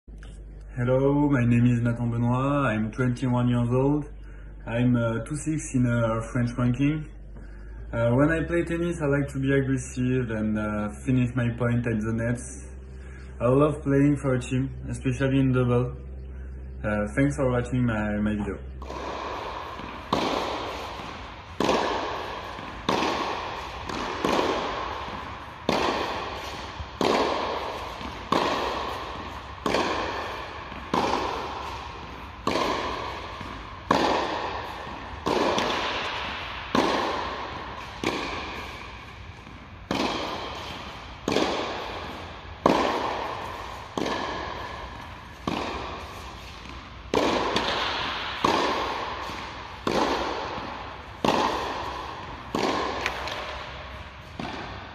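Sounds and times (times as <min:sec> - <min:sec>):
tennis ball struck by rackets: 0:18.7 - 0:54.9.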